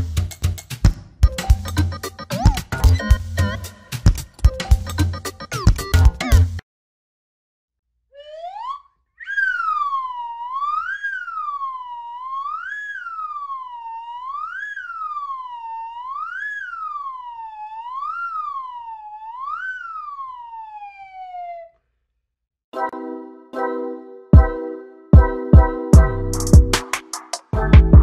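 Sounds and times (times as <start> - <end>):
siren wailing: 8.2 - 21.8.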